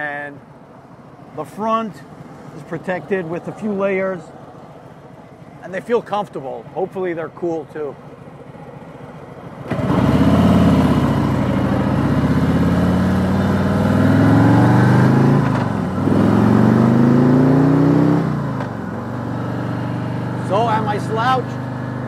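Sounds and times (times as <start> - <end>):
motorcycle engine revving and accelerating: 9.4 - 22.0.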